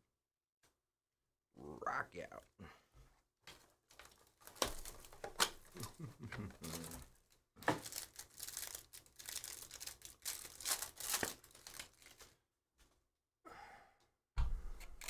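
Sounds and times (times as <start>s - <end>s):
sharp plastic crackle: 3.5s - 12.4s
plastic wrapper tearing and crinkling: 3.6s - 12.4s.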